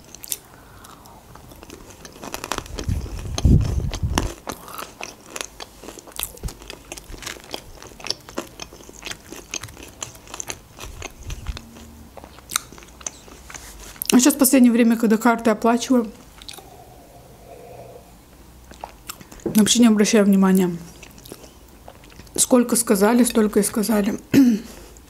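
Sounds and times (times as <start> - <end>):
crunchy chewing: 0.0 - 14.2, 16.2 - 19.4, 20.9 - 22.4.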